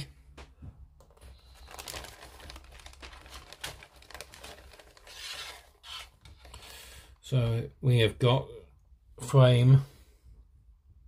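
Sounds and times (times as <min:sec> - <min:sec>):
plastic bag crinkling and rustling: 0:01.1 - 0:06.7.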